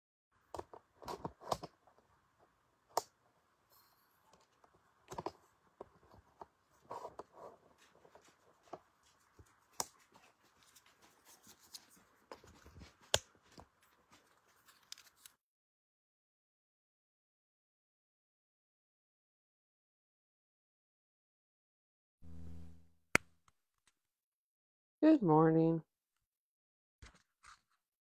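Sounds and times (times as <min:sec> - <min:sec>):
faint steady background: 0:00.3 - 0:15.4.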